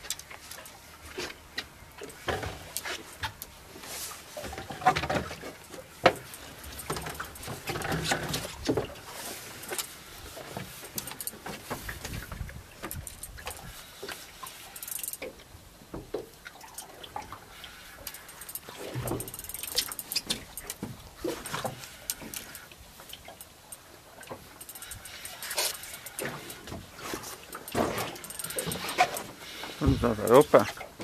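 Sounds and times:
rustling of fishing gear: 0.0s - 31.0s
fishing reel clicking and knocking: 6.0s - 8.5s, 9.6s - 11.6s, 12.8s - 15.4s, 18.0s - 30.7s.

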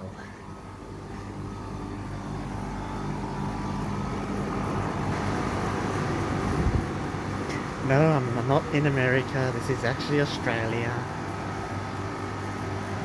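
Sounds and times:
air conditioner fan and compressor hum: 0.0s - 13.0s.

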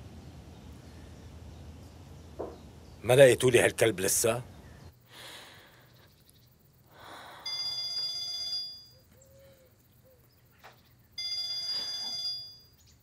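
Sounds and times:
electronic phone ringing: 7.4s - 9.0s, 11.2s - 12.7s.

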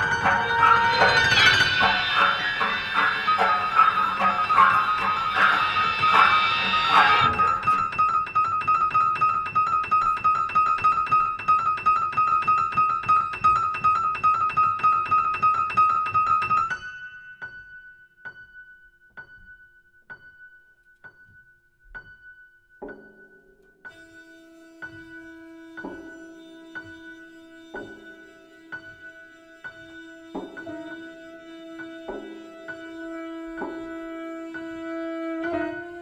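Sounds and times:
prepared piano high note hammered: 0.0s - 8.3s
low held piano tones: 0.0s - 36.0s.

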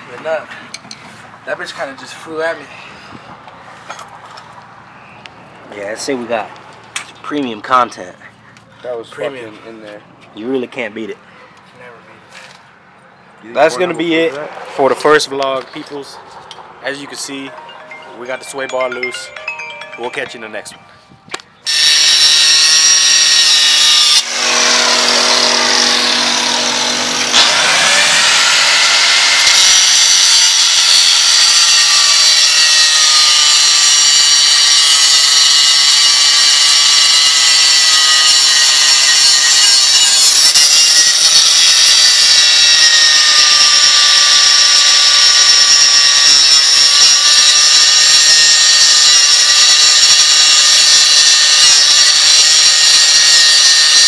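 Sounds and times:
angle grinder high whine: 21.6s - 54.0s.

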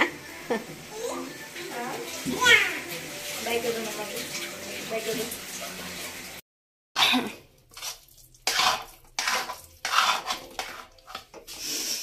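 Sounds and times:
steel spoon scraping a wok: 7.7s - 12.0s.

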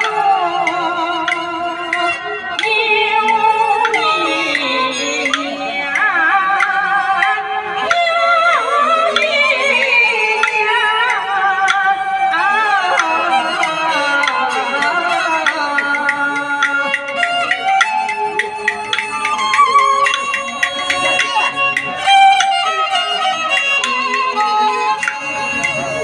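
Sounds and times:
wooden percussion clicks: 0.0s - 7.3s, 7.9s - 11.8s, 12.9s - 25.9s
woman singing opera: 0.0s - 17.0s
high-pitched bowed fiddle: 0.0s - 26.0s.

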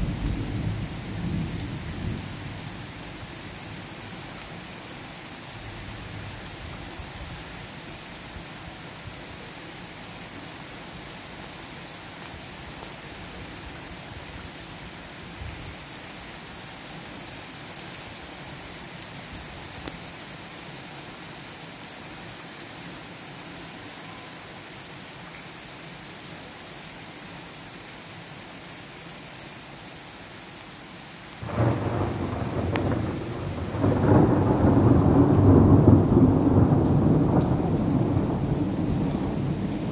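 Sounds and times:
steady rain falling: 0.0s - 39.9s
thunder crack and rumble: 31.4s - 39.9s.

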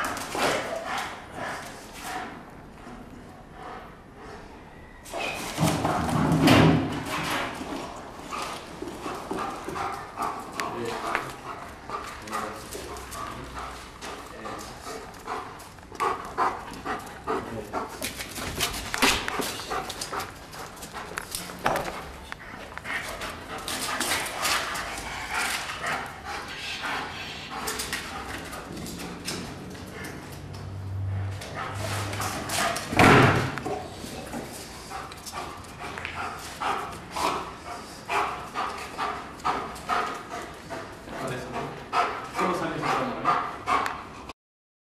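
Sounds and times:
clicks and scuffs on concrete: 17.9s - 26.6s.

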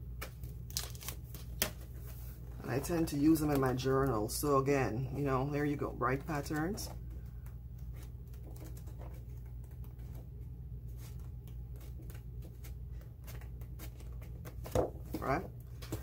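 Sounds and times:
steady low hum: 0.0s - 16.0s
paper pages rustling: 6.1s - 16.0s.

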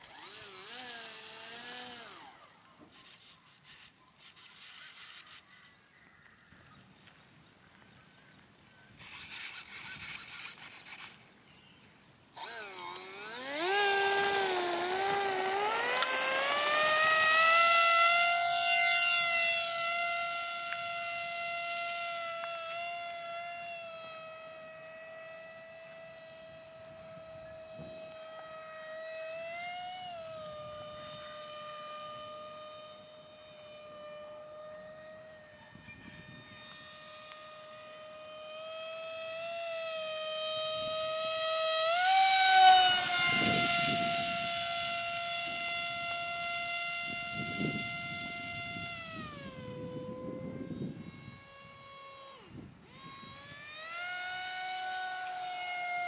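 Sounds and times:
model plane motor whine: 0.0s - 56.0s.

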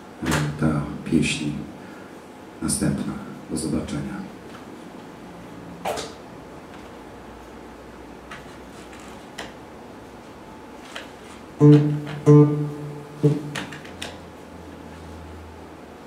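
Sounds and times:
acoustic guitar chords ringing: 11.5s - 13.8s.

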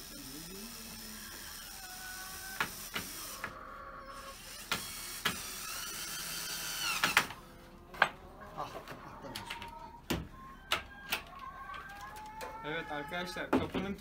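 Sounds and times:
cordless drill whining: 0.0s - 3.5s, 4.1s - 7.4s.

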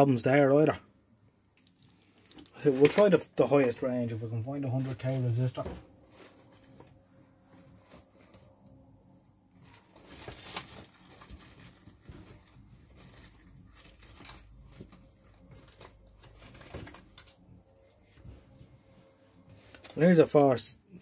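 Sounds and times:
rustling and crinkling of packets: 1.8s - 8.5s, 9.6s - 17.4s.

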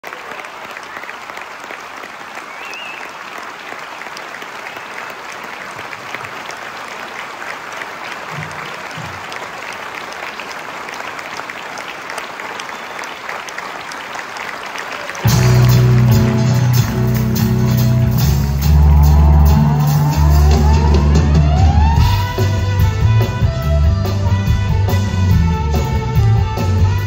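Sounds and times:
audience applauding: 0.0s - 24.0s.

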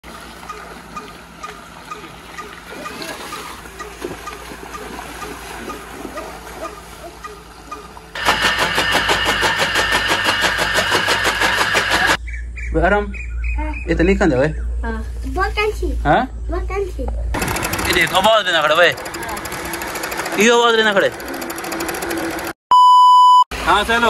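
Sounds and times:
water rushing and splashing: 0.0s - 8.2s
chaff cutter chopping stalks: 8.2s - 12.2s.

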